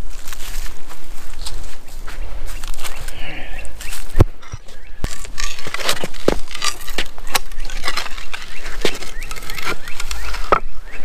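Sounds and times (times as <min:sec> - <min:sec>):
spade digging soil: 0:03.2 - 0:11.0.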